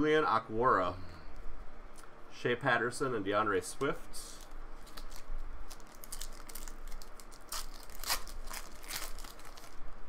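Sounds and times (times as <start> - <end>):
foil wrapper crinkling and tearing: 4.2 - 10.0.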